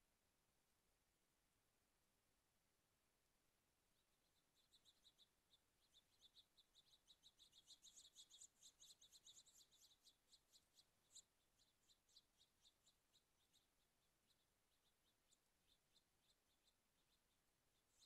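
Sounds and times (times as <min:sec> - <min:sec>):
small birds chirping: 0:03.8 - 0:18.0.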